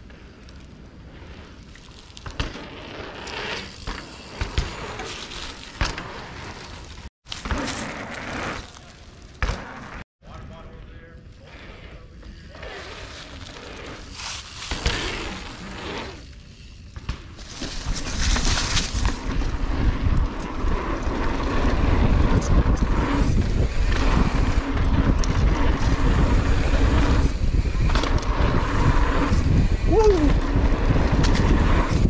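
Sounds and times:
bike tyres on dirt: 0.0 - 32.0
wind buffeting microphone: 17.8 - 32.0.

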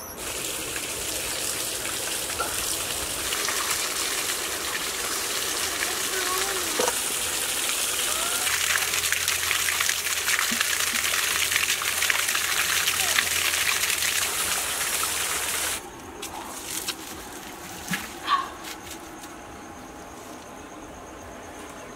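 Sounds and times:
water gushing and splashing: 0.1 - 15.8.

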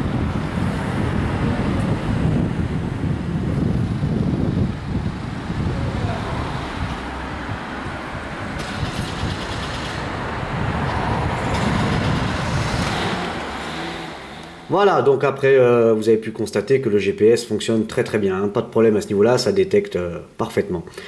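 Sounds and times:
road traffic noise: 0.0 - 15.2
wind gusting on microphone: 0.0 - 15.2.

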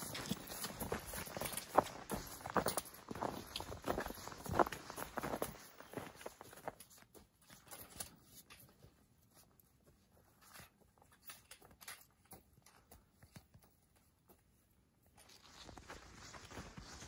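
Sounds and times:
faint clicks and rustles: 0.0 - 17.0.

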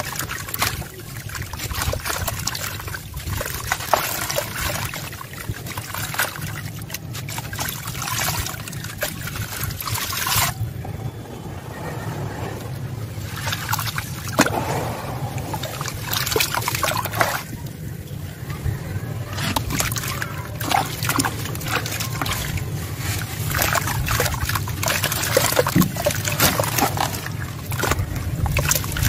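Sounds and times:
hands working in muddy water: 0.0 - 29.0
crumbs splashing into water: 13.3 - 17.6, 19.3 - 29.0.

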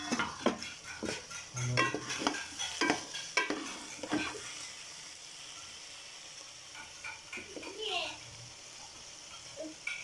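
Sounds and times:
wooden spatula scraping pot: 0.0 - 4.7
low sizzle of cooking food: 0.0 - 10.0.

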